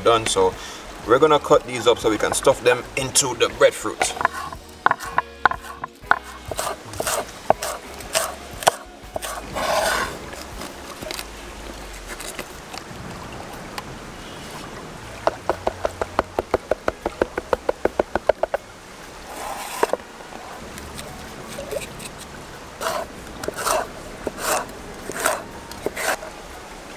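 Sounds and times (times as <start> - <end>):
knife chopping on wooden board: 4.0 - 10.1.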